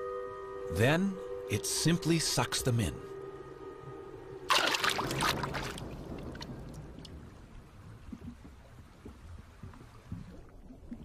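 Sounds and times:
water rushing: 4.5 - 11.0.

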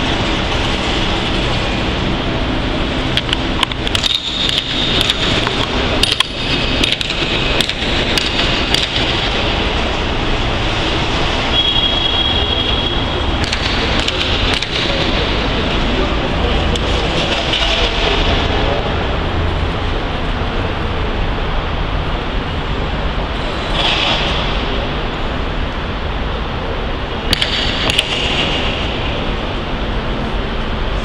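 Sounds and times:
renovation work din: 0.0 - 31.0.

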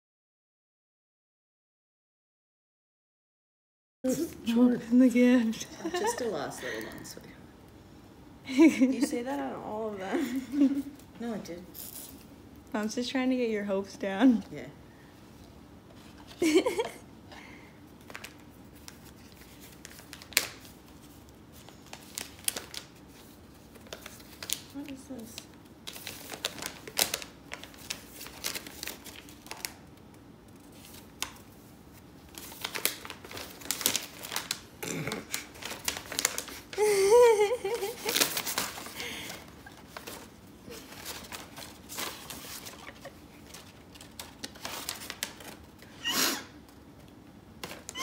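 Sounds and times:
paper crinkling and rustling: 18.0 - 45.9, 47.0 - 48.0.

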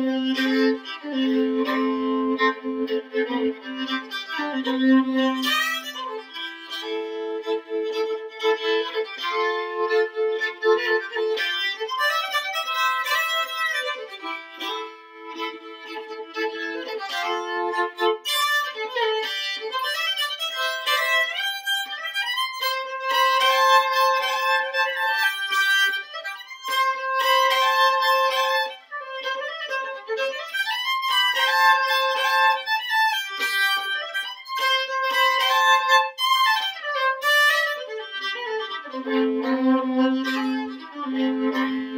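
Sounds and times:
solo fiddle folk tune: 0.0 - 41.9.

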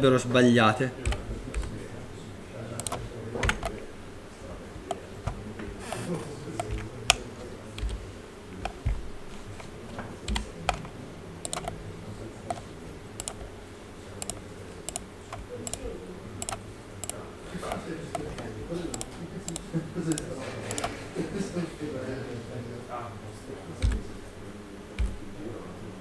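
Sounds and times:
mouse buttons clicking: 1.0 - 1.7, 2.8 - 3.8, 6.6 - 7.2, 10.3 - 11.8, 12.5 - 13.5, 14.2 - 15.8, 16.4 - 21.0, 23.8 - 24.1, 25.0 - 25.4
keyboard keys clicking: 1.0 - 1.8, 2.8 - 3.9, 4.9 - 11.8, 12.5 - 13.5, 14.2 - 21.0, 23.8 - 24.3, 25.0 - 25.4.

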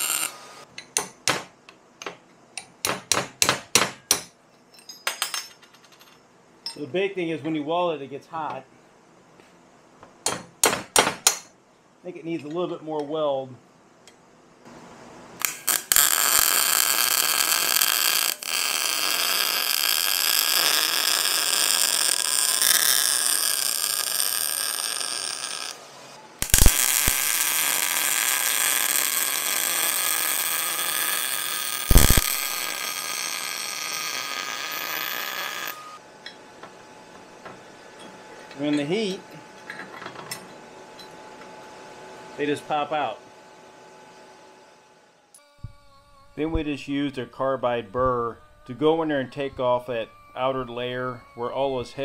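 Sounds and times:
welder arc running: 0.0 - 0.7, 15.4 - 36.4
sharp welding pops: 15.4 - 25.8, 26.4 - 35.8.

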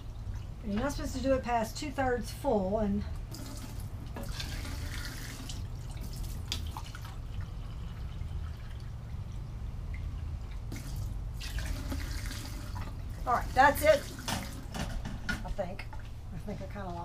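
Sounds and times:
water pouring and splashing: 0.0 - 0.9, 3.2 - 15.2
tap water running: 0.0 - 1.7, 3.1 - 16.2.

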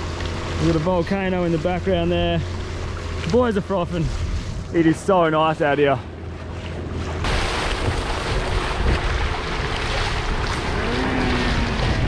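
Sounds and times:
low hum: 0.0 - 12.0
low rumble: 0.0 - 12.0
water splashing: 0.0 - 12.0
wind rushing over microphone: 7.2 - 12.0.

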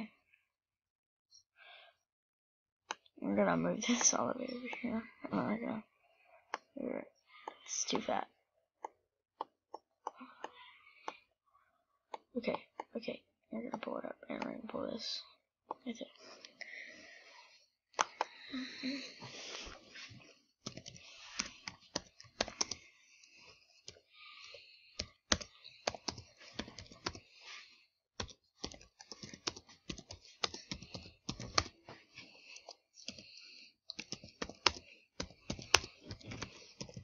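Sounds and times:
keyboard typing clicks: 20.7 - 22.8, 25.0 - 27.2, 28.2 - 31.7, 33.9 - 37.0.

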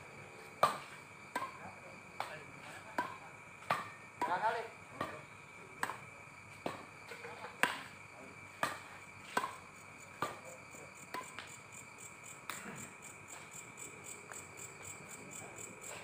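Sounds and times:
night insects chirring: 0.0 - 16.0
rackets striking shuttlecock: 5.8 - 6.8, 7.6 - 8.0.

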